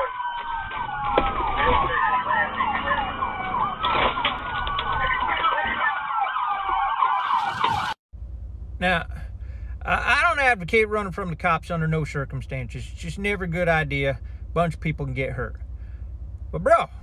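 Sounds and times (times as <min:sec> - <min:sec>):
police siren wailing: 0:00.0 - 0:08.0
police siren yelping: 0:00.0 - 0:08.0.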